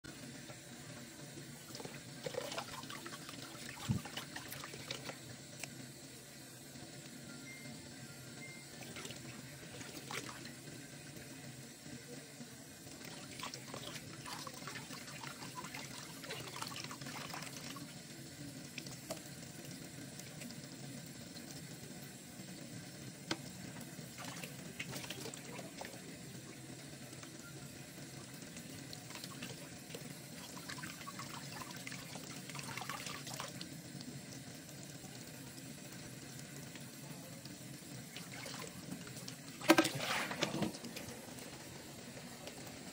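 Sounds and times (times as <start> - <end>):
small water splashes: 38.1 - 41.0
tap running into bowl: 38.9 - 41.2.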